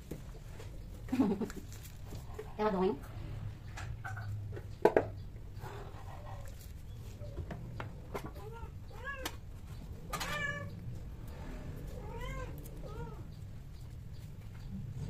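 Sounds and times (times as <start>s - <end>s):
cat yowling meows: 10.1s - 10.7s.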